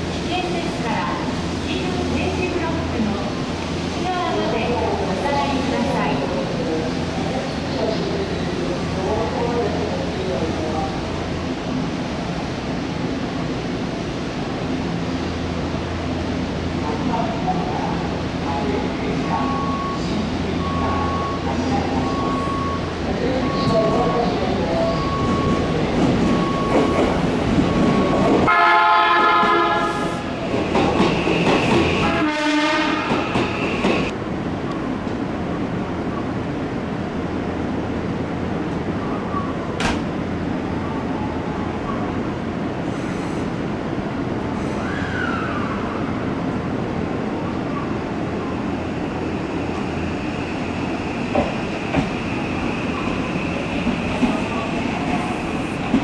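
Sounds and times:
train rolling rumble: 0.0s - 56.0s
train horn: 28.4s - 30.0s, 32.0s - 33.1s.

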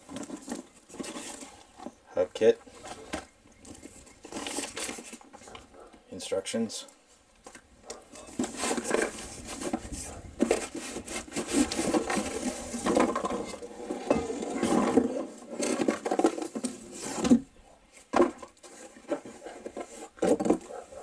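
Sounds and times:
plastic and paper crinkling: 0.0s - 2.0s, 2.6s - 5.9s, 7.4s - 13.7s.

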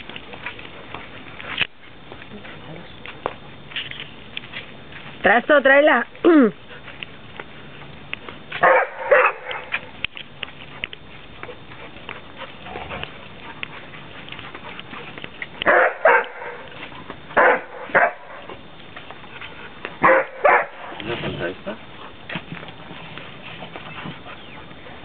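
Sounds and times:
dog barking: 8.6s - 9.7s, 15.6s - 16.7s, 17.4s - 18.4s, 20.0s - 20.9s.

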